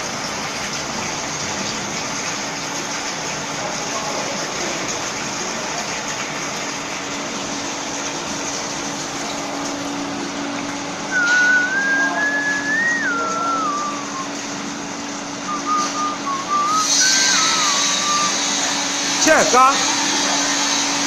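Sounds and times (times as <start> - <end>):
liquid streaming into trough: 0.0 - 21.0
pump motor hum: 0.0 - 21.0
loud wavering whistle: 11.1 - 14.4, 15.5 - 19.0.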